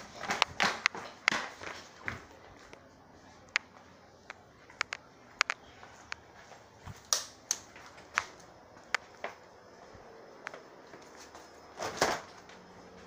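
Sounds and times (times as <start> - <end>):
sharp clicks and taps: 4.3 - 5.6.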